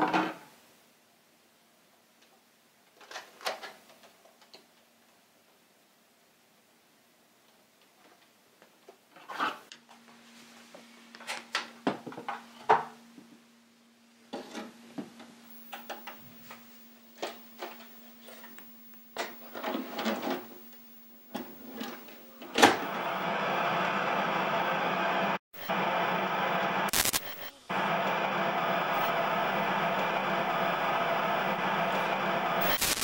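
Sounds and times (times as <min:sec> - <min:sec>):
faint steady hum: 0:09.8 - 0:33.0
television static hiss: 0:15.4 - 0:33.0.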